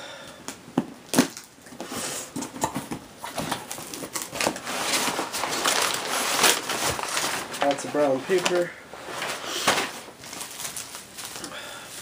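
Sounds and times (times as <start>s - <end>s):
packing paper rustling: 2.5s - 12.0s.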